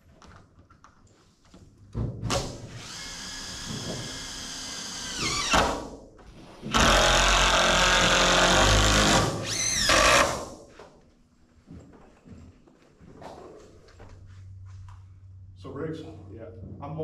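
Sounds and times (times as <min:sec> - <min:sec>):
power drill driving fastener: 0:02.3 - 0:05.9, 0:06.7 - 0:10.5.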